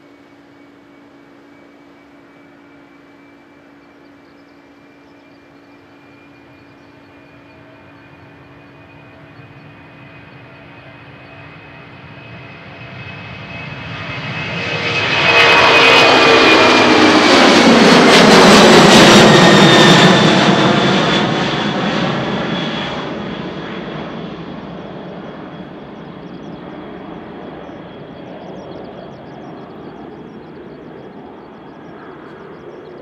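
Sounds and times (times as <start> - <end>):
jet airliner taking off: 0.0 - 33.0.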